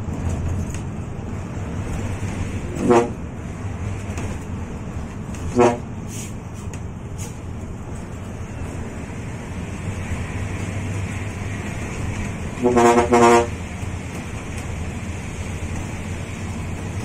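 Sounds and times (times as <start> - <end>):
bus diesel engine and road noise: 0.0 - 17.0
air horn blasts: 2.8 - 3.2, 5.5 - 5.9, 12.5 - 13.6.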